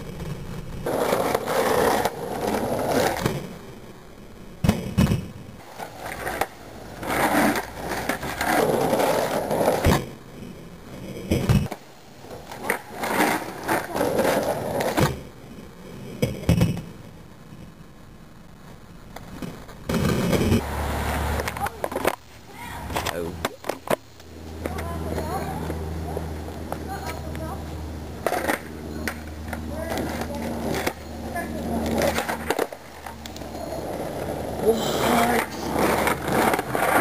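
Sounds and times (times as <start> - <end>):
skateboard wheels rolling on asphalt: 0.0 - 37.0
skateboard tail clacks: 22.9 - 27.5, 28.2 - 37.0.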